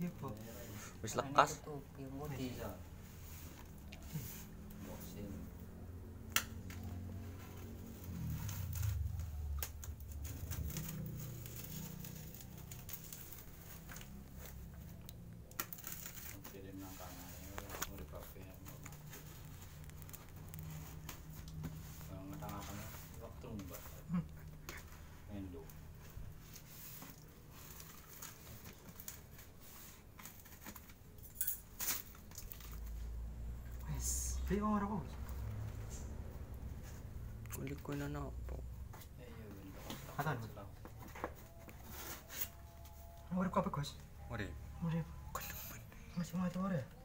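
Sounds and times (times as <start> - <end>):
tape and paper crinkling: 6.1 - 34.0, 38.9 - 44.0.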